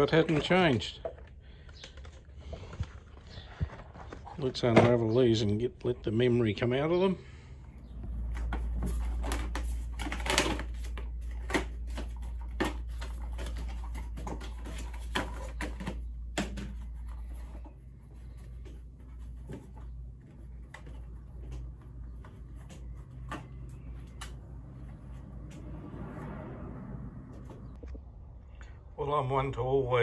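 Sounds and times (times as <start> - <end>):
tyre clicks taps and rustles: 8.0 - 25.7.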